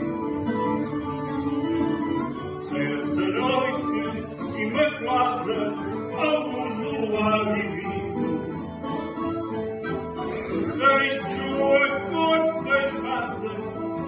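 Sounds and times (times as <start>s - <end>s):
acoustic guitar: 0.0s - 14.0s
person singing slow melody: 10.2s - 14.0s.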